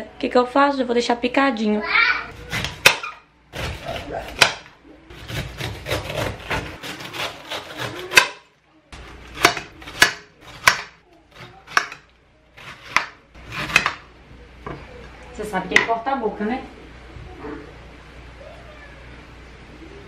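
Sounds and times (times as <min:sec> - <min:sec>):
knife sawing through rind: 0:02.3 - 0:04.4, 0:05.1 - 0:08.4, 0:12.6 - 0:13.9.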